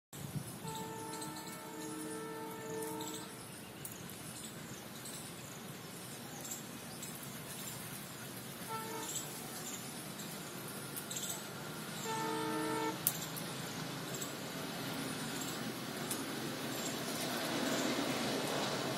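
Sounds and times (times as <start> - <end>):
distant locomotive horn: 0.5 - 3.5, 8.6 - 9.6, 11.5 - 13.2
birds chirping: 0.5 - 18.6.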